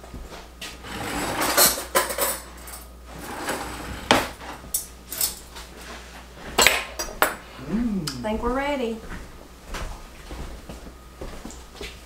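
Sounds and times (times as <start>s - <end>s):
metal cutlery clinking: 1.3s - 2.9s, 4.8s - 5.5s.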